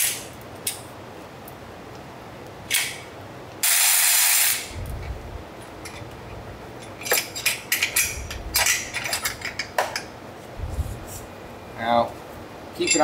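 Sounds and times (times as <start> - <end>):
low rumble: 4.7 - 6.6, 10.6 - 11.2.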